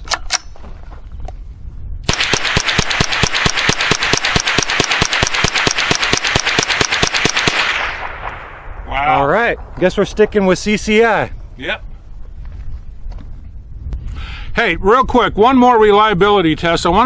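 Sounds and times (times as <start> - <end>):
rifle firing rapidly: 2.1 - 8.5.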